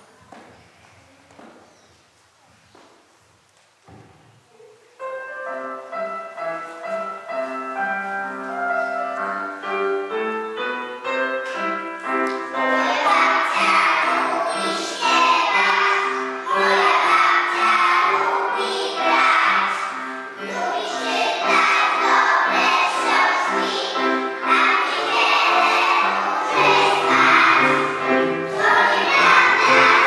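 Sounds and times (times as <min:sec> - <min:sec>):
instrumental song melody: 0:05.0 - 0:30.0
children singing: 0:12.5 - 0:30.0.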